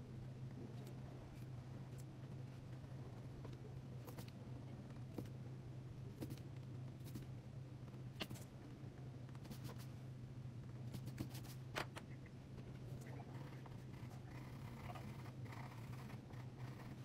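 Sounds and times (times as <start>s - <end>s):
steady low hum: 0.0s - 17.0s
pencil scratching on paper: 13.3s - 17.0s.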